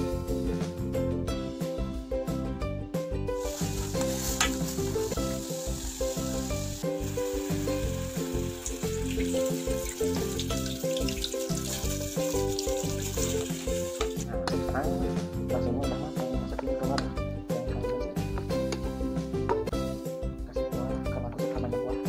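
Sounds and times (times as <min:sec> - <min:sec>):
background music: 0:00.0 - 0:22.0
water boiling in saucepan: 0:03.4 - 0:14.2.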